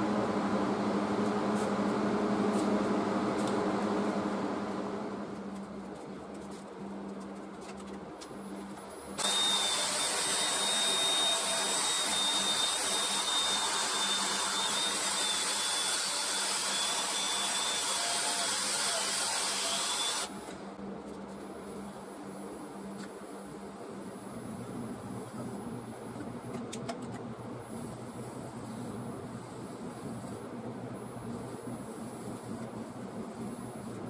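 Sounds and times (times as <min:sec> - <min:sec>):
cordless drill whirring: 0:09.2 - 0:20.3.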